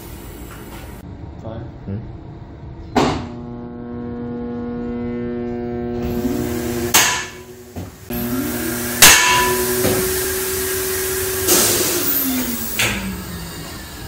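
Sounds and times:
electrical hum: 0.0 - 14.0
loud sharp bang: 3.0 - 3.7.

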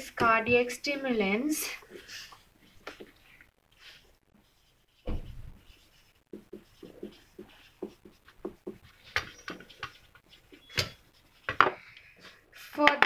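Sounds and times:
marker squeaking on whiteboard: 0.5 - 12.7
thump: 5.0 - 5.6.

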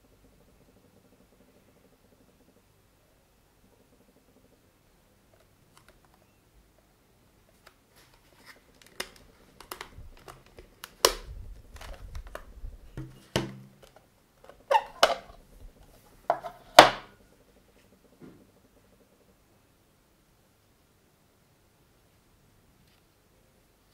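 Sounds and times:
plastic clicks and knocks: 8.8 - 15.4.

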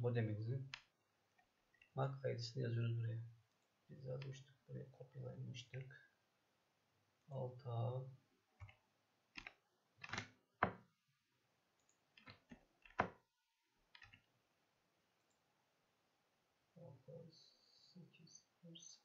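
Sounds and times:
keyboard keystrokes: 9.4 - 10.8, 14.0 - 14.2.

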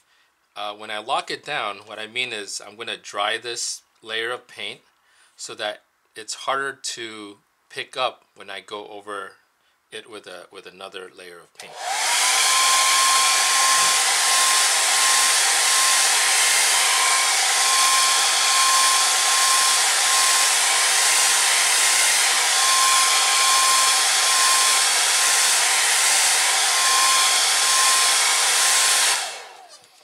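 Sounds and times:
hair dryer blowing: 11.6 - 30.0.

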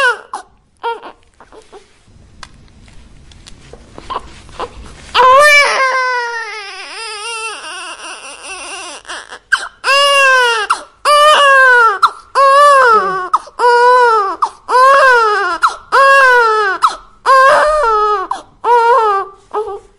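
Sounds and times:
infant crying: 0.0 - 1.9, 4.1 - 19.9.

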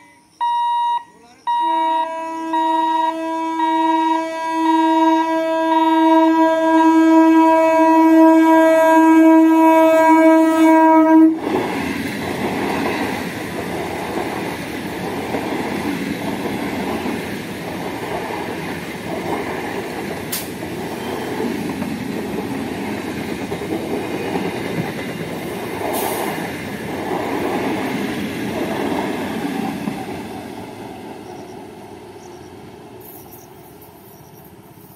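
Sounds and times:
train horn blast: 1.5 - 11.4
train rumbling past: 1.5 - 34.9.

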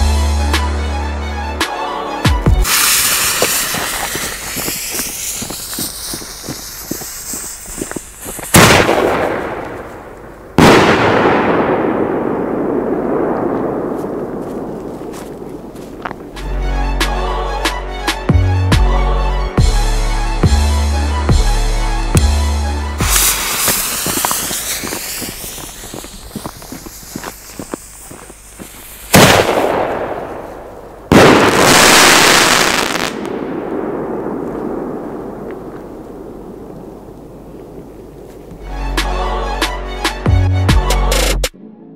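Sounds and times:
firework bangs with echoing rumble: 2.5 - 16.4, 23.0 - 38.1
faint firework crackles: 2.6 - 16.5, 23.0 - 38.6.

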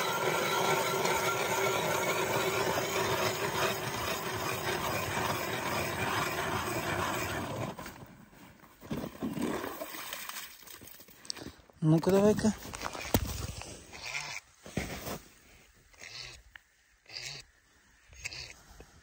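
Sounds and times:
powered ice auger drilling: 0.0 - 8.1, 12.7 - 14.4, 15.9 - 16.4, 18.1 - 18.6.

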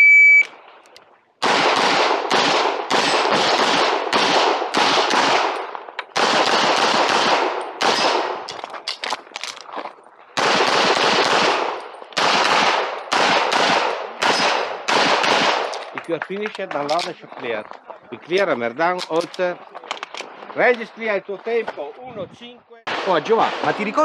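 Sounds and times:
handgun firing rapidly: 1.4 - 8.4, 10.4 - 15.8.

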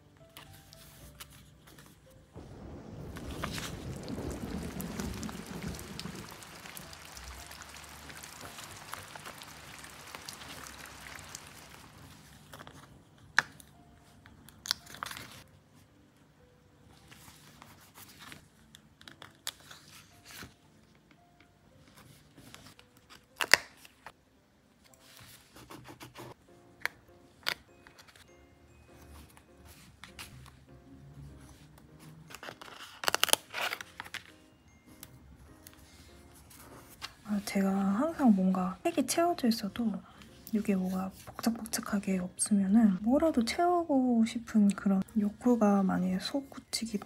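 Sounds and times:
paper rustling and crinkling: 0.2 - 15.5, 17.0 - 21.0, 21.8 - 24.2, 24.8 - 28.3, 31.4 - 34.5, 35.6 - 42.0.

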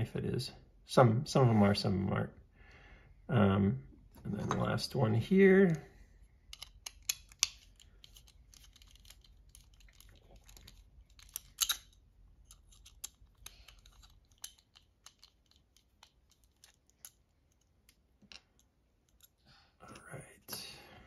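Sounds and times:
small parts clattering: 6.4 - 19.4
folding knife parts clicking: 6.5 - 17.2.

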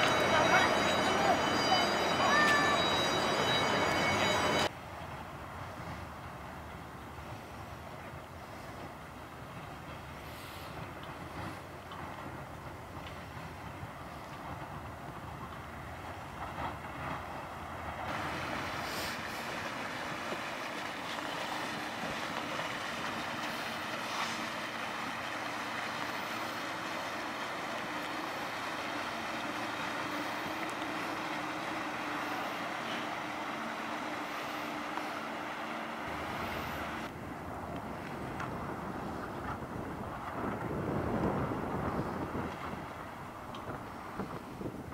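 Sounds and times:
boat engine: 0.0 - 44.9
wind on microphone: 37.1 - 44.9.

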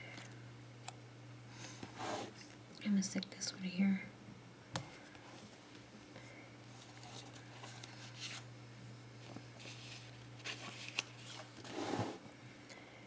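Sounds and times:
paper rustling: 9.2 - 11.8.

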